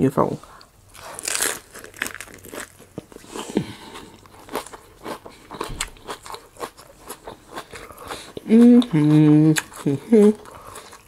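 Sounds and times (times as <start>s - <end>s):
person chewing crunchy food: 0.9s - 11.0s.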